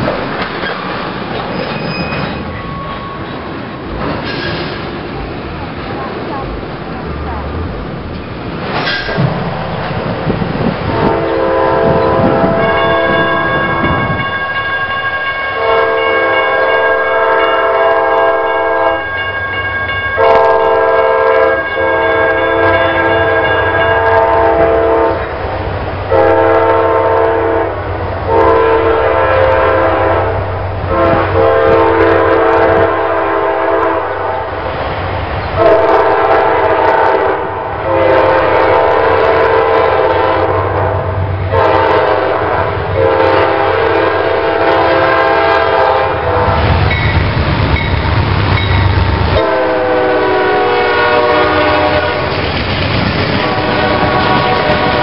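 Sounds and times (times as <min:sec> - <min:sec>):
locomotive air horn blasts: 0:10.9 - 0:13.8, 0:15.6 - 0:19.1, 0:20.2 - 0:25.3, 0:26.1 - 0:34.5, 0:35.6 - 0:46.9, 0:49.4 - 0:52.3, 0:53.4 - 0:55.0.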